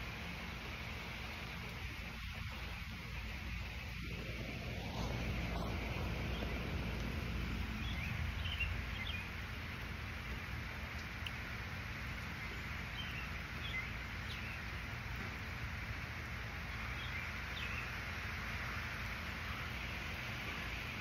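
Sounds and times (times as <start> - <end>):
rain hissing: 0.0 - 21.0
low rumble: 3.7 - 8.5.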